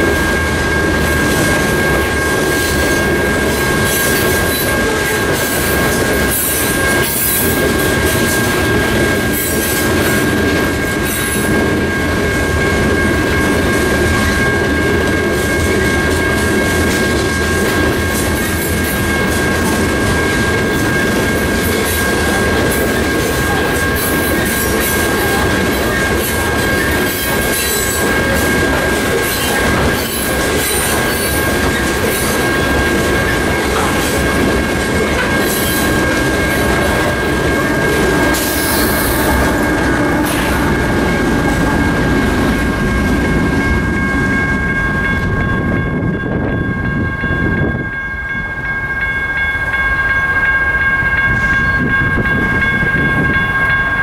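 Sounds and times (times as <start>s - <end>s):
train wheels clattering: 0.0s - 44.4s
diesel locomotive engines: 0.0s - 54.0s
steady high ringing tone: 0.0s - 54.0s.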